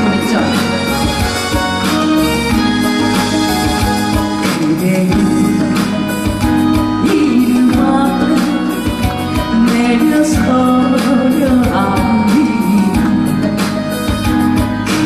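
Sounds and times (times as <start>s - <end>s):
instrumental backing with beat: 0.0s - 15.0s
person singing: 4.2s - 13.8s.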